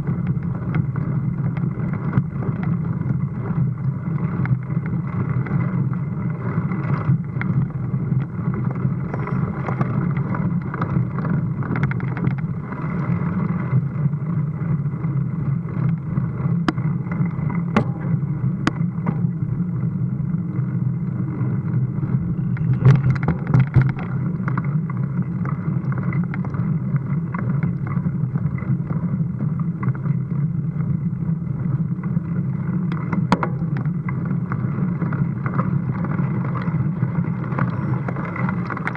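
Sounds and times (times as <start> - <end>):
bike riding rumble: 0.0 - 38.9
wind noise: 0.0 - 38.9
sharp clicks and knocks: 22.5 - 24.7, 33.0 - 34.2.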